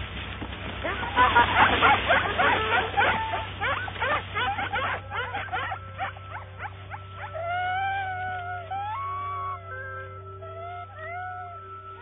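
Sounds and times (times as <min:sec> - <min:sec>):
dogs barking and yipping: 0:00.7 - 0:10.1
long held pitched tone: 0:05.0 - 0:12.0.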